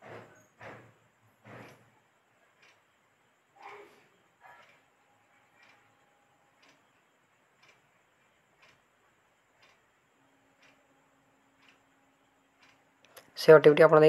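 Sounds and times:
faint even ticks: 0:06.6 - 0:08.9, 0:09.5 - 0:09.9.

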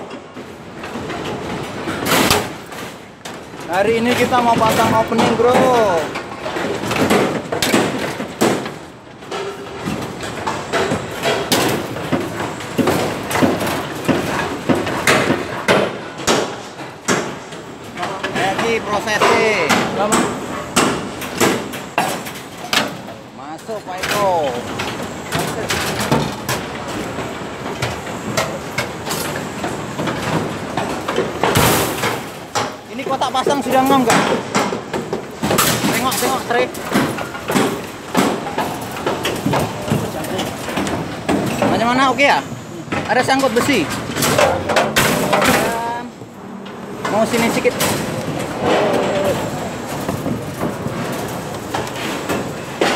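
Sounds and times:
hammer knocks and clanks: 0:00.0 - 0:23.2, 0:24.0 - 0:52.9
site machinery din: 0:39.4 - 0:51.0.

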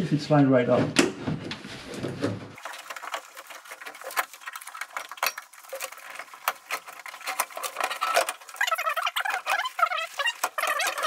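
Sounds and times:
squeaky metal scrape: 0:05.1 - 0:11.0.

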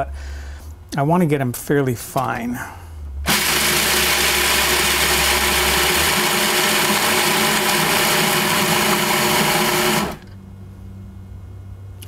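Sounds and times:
food processor grinding nuts: 0:03.3 - 0:10.3.

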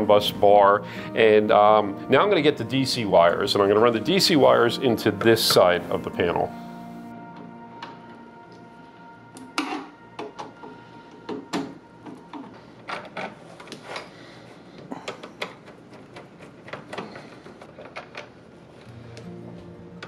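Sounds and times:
tools clicking and tapping: 0:09.4 - 0:14.2, 0:14.8 - 0:18.3.

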